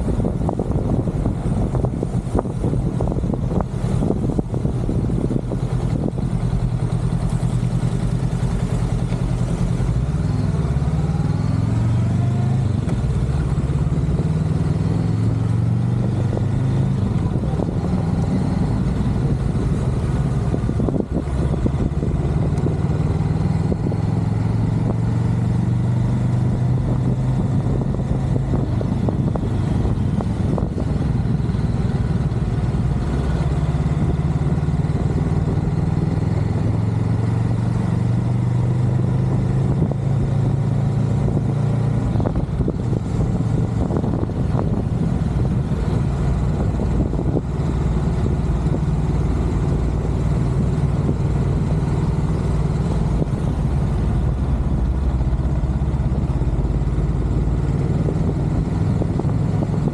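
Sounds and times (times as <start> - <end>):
motorcycle engine revving: 0.0 - 59.9
road and wind noise: 0.0 - 59.9.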